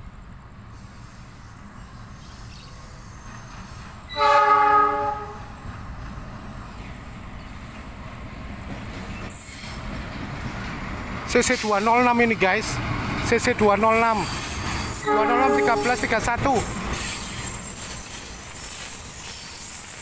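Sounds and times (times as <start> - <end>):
low train rumble: 0.0 - 20.0
locomotive horn blast: 4.1 - 5.5, 15.0 - 16.2.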